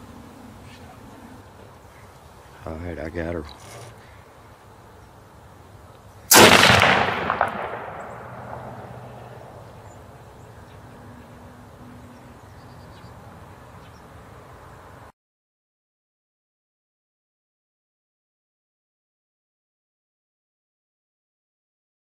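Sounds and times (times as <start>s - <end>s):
faint sharp crack: 6.3s - 9.1s
loud gunshot: 6.3s - 9.3s.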